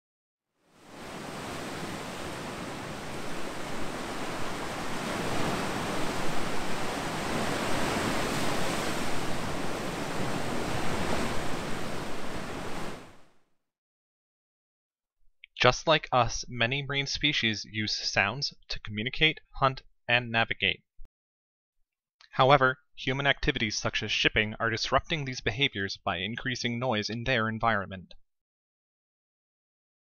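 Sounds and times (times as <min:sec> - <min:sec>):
ocean waves breaking: 0:00.7 - 0:13.3.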